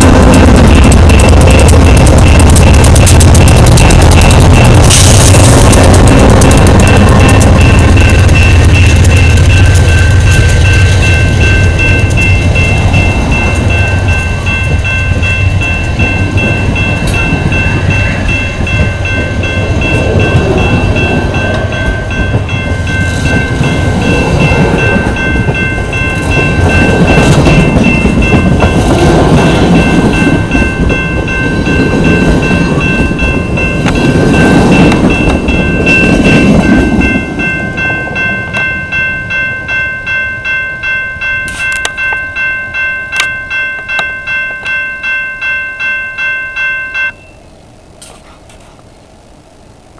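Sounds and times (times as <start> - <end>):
train wheels clattering on rails: 0.0 - 39.4
crossing bell ringing: 0.0 - 47.6.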